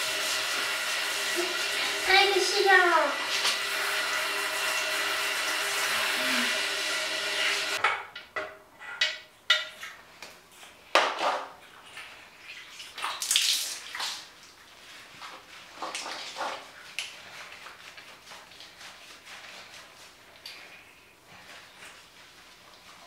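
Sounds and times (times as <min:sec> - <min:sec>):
shower head spraying water: 0:00.0 - 0:07.8
water splashes and wet rubbing: 0:00.0 - 0:07.8, 0:10.2 - 0:23.0.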